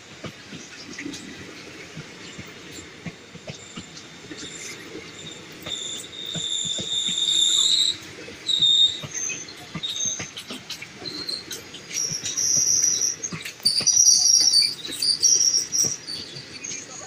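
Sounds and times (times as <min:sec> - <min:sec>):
train wheels clicking on rail joints: 0:00.0 - 0:17.0
steel wheel squeal: 0:04.3 - 0:17.0.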